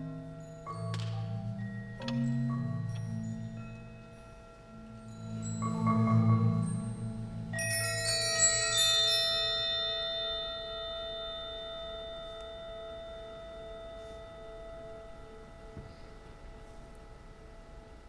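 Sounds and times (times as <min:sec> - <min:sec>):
low marimba roll: 0:00.0 - 0:18.0
high-pitched metal bells ringing: 0:03.0 - 0:15.7.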